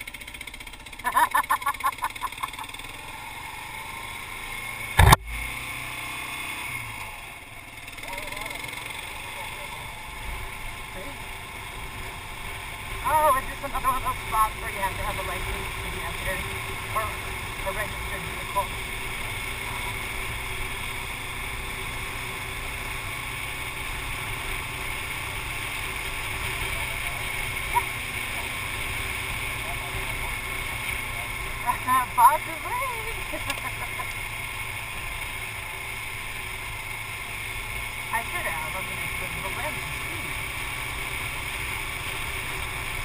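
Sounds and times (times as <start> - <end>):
motorcycle engine running: 0.0 - 43.0
sharp loud knock: 5.0 - 5.2.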